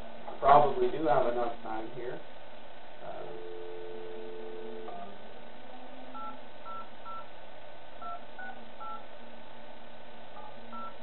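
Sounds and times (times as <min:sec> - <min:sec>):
telephone keypad beeps: 0:06.2 - 0:07.3, 0:08.0 - 0:09.0, 0:10.4 - 0:11.0.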